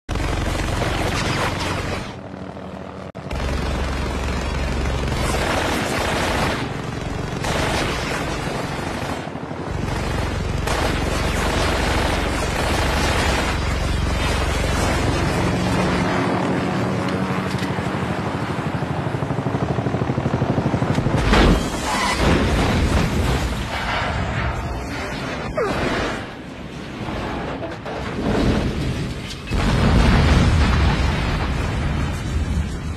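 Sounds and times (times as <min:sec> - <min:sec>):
helicopter: 0:00.1 - 0:32.9
explosions: 0:21.2 - 0:32.9.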